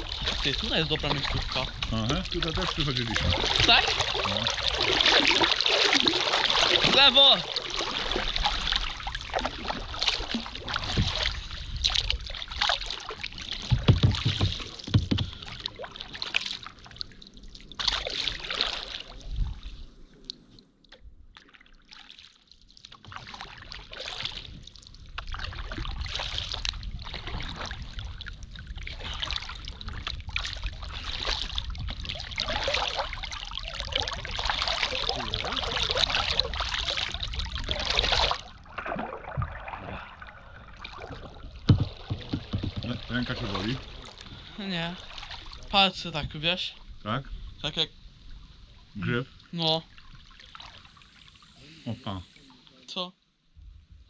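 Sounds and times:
water trickling: 0.0 - 19.6, 21.4 - 52.9
paddles splashing in water: 0.0 - 20.4, 21.3 - 51.8
low knocks: 13.6 - 15.6, 41.6 - 43.6.

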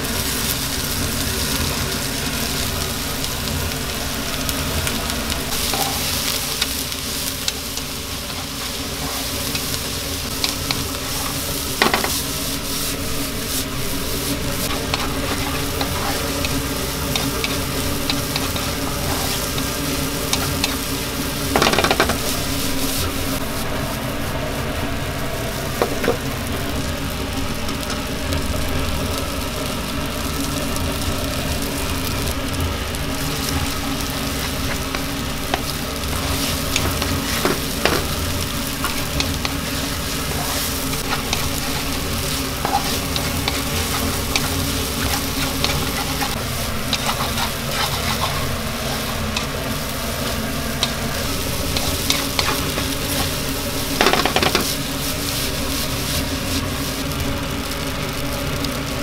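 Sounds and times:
food sizzling in frying pan: 0.0 - 59.0
spatula scraping pan: 14.3 - 20.8, 33.2 - 56.7.

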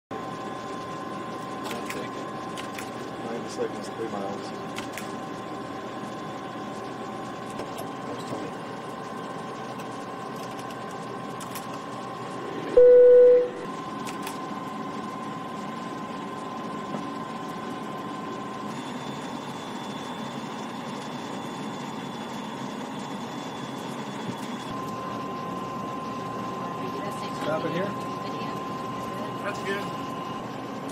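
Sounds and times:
cockpit airflow hum: 8.8 - 30.8
faint steady tones: 11.0 - 13.9
loud beep: 12.7 - 13.7.

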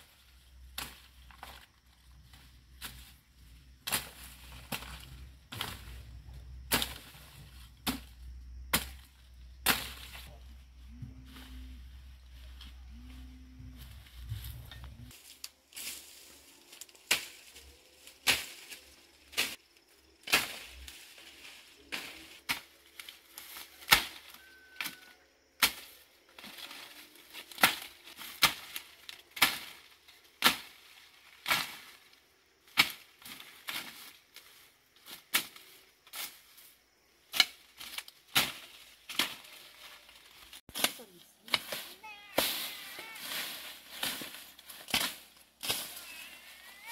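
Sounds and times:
foliage rustling: 0.0 - 46.9
machete chopping brush: 8.7 - 10.2, 17.0 - 17.6, 18.2 - 18.7, 20.2 - 20.8, 27.5 - 28.8, 29.4 - 30.8, 32.7 - 34.0, 40.7 - 46.2.

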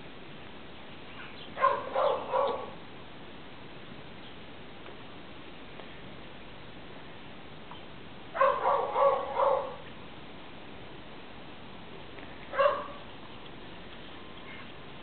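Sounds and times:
dog barking: 1.6 - 2.8, 8.4 - 9.8, 12.5 - 13.0.

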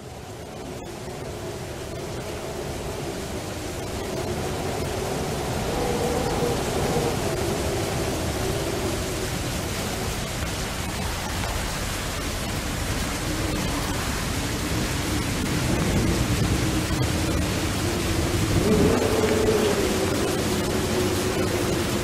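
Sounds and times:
steady noise hiss: 0.0 - 22.0
low wavering drone: 12.8 - 22.0.

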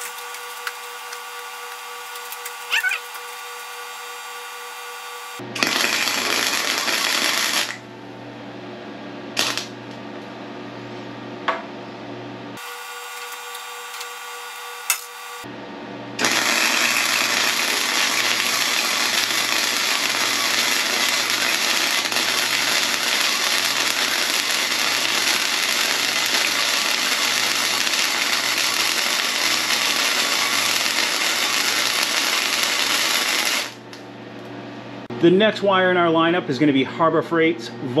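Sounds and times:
arc welding crackle: 0.0 - 7.9, 9.4 - 10.0, 12.6 - 15.5, 16.2 - 34.0.

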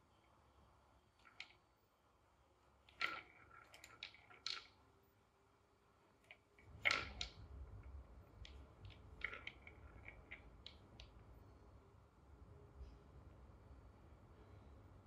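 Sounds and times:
balls clacking in wooden track: 2.9 - 4.8, 6.6 - 11.2.

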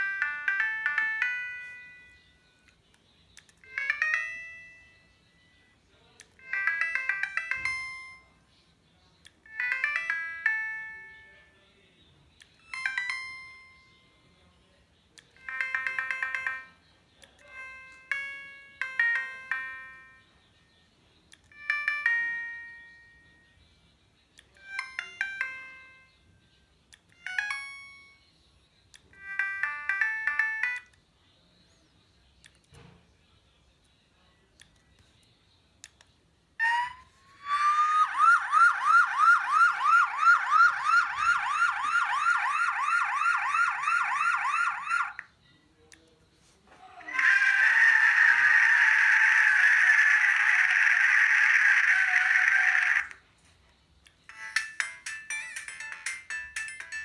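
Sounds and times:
mobile phone electronic jingles: 54.3 - 57.0.

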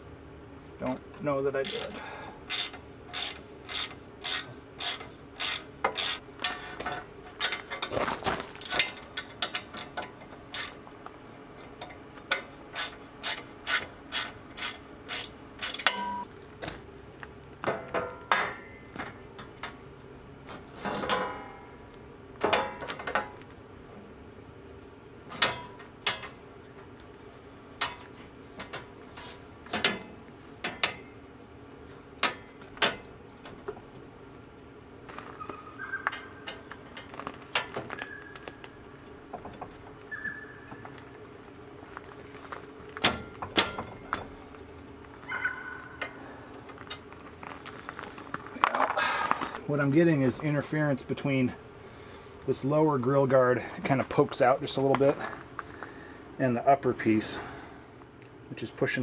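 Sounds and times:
ratchet wrench clicking: 2.5 - 6.2.

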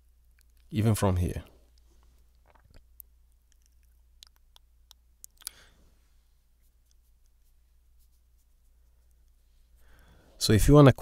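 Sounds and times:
mouth clicks and lip smacks: 0.3 - 0.7, 1.7 - 5.7, 6.6 - 9.4.

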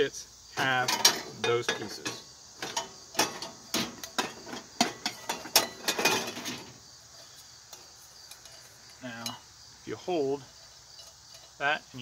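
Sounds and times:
metal cook kit pieces clinking: 0.6 - 6.7.

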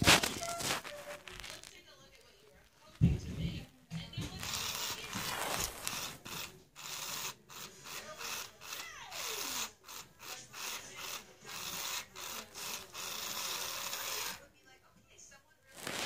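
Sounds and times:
toy motor grinding: 0.0 - 1.8, 4.3 - 14.4.

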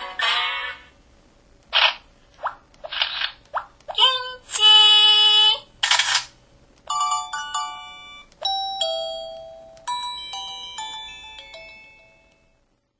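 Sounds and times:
camera shutter sound: 5.8 - 6.3
bell-like alert melody: 6.9 - 12.6.

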